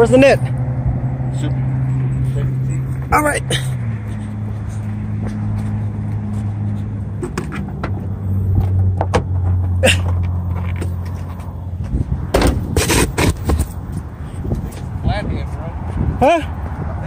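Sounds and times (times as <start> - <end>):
loud scuffling: 4.2 - 14.9.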